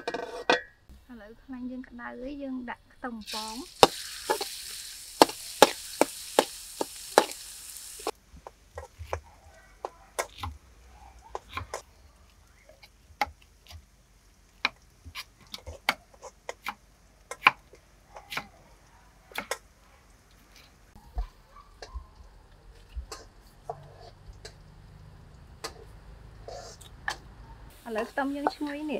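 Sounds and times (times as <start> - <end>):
garlic sizzling in hot oil: 3.1 - 9.2, 22.2 - 28.9.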